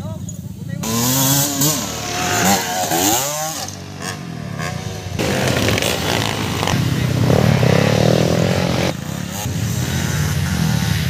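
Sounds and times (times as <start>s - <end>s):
dirt bike engines revving: 0.0s - 11.0s.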